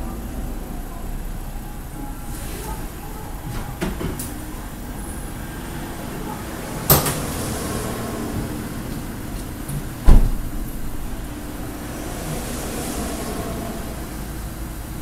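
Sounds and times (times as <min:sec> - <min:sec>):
steady low hum: 0:00.0 - 0:15.0
car door slamming: 0:09.7 - 0:11.1.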